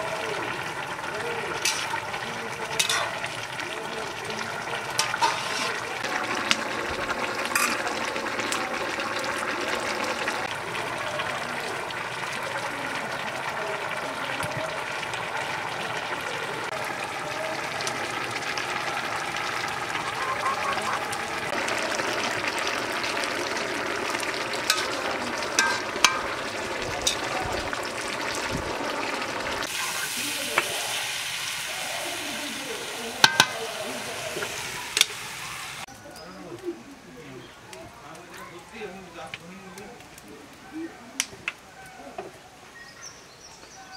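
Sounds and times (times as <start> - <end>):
curry bubbling in a wok: 0.0 - 36.0
metal spatula clinking on pan: 2.8 - 3.2, 25.6 - 26.3, 33.2 - 33.6.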